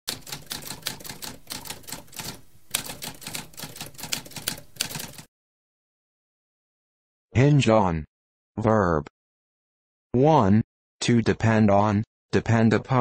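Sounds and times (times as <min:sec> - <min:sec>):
typewriter keys clacking: 0:00.1 - 0:05.3.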